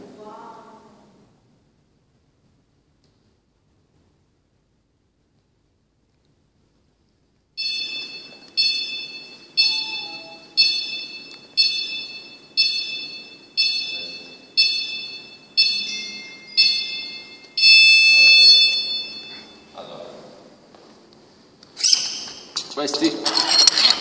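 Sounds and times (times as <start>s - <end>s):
short high electronic beeps: 9.6s - 10.9s.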